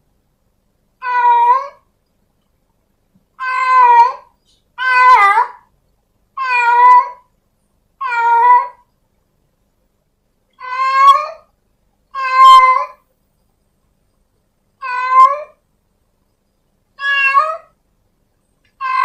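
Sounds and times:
kitten meowing: 3.4s - 5.6s, 6.4s - 7.2s, 10.6s - 11.5s, 12.2s - 13.0s, 14.8s - 15.6s, 17.0s - 17.7s, 18.8s - 19.0s.

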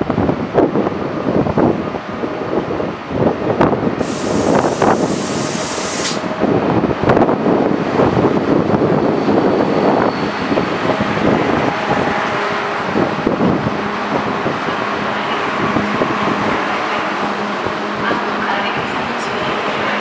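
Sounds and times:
train noise: 0.0s - 20.0s
air brakes hissing: 4.0s - 6.3s.

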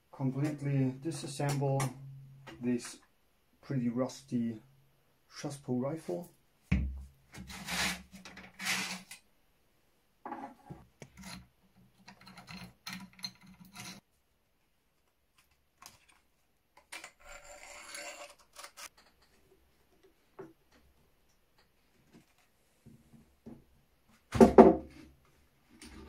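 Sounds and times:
screwdriver scraping rusted screw: 7.3s - 9.2s, 11.0s - 14.0s, 16.8s - 19.3s
metal parts knocking and clicking: 11.1s - 14.0s.

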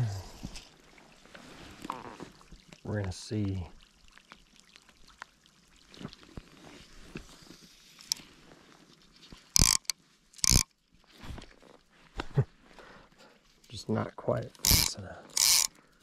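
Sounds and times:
fishing reel ticks: 9.6s - 10.7s, 14.6s - 15.8s
fishing line casting rushes: 14.6s - 15.7s.

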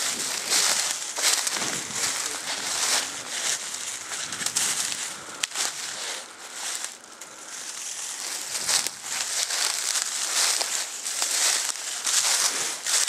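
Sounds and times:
dry leaves rustling and crackling: 0.0s - 13.0s.

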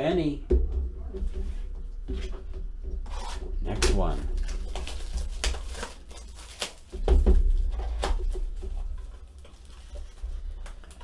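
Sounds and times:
plastic wrapper crinkling: 3.9s - 11.0s.

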